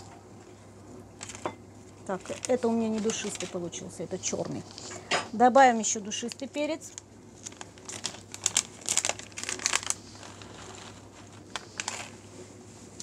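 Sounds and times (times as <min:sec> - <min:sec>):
paper sachet crinkling: 0:01.2 - 0:04.8, 0:06.1 - 0:12.3.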